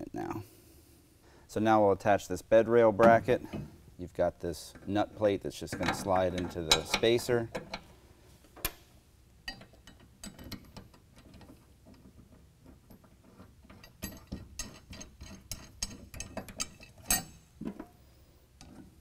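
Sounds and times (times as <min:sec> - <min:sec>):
metallic clicks of bracket and bolt: 0:05.7 - 0:07.9, 0:08.6 - 0:17.9.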